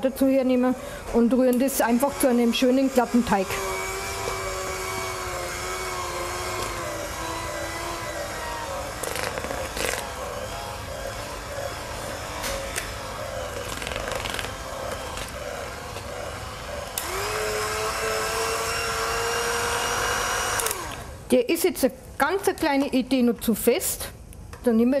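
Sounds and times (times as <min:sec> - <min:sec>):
electric hand mixer whirring: 0:00.0 - 0:21.2.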